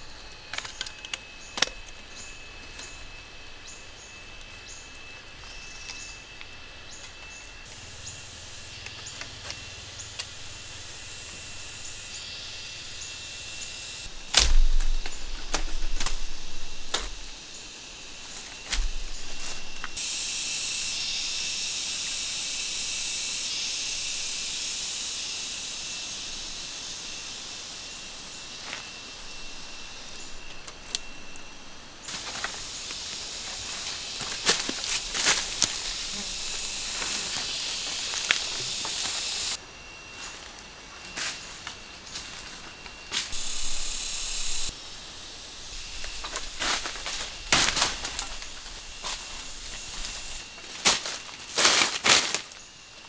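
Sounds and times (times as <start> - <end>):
high insect drone: 0.0 - 53.0
branches cracking and rustling: 14.0 - 17.4, 18.2 - 20.0, 28.6 - 39.6, 45.7 - 52.6
heavy thud: 14.3 - 17.2.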